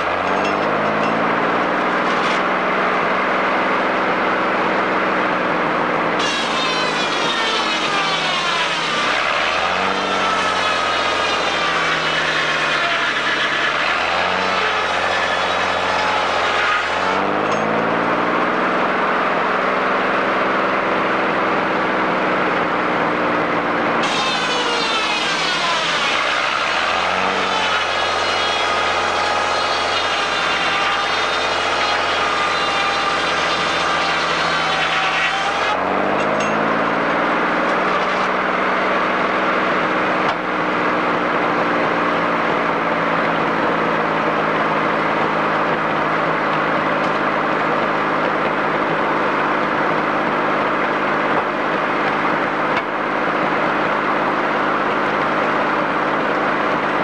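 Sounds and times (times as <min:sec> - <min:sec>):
saw whining through log: 0:00.0 - 0:57.0
sawmill engine running: 0:00.0 - 0:57.0.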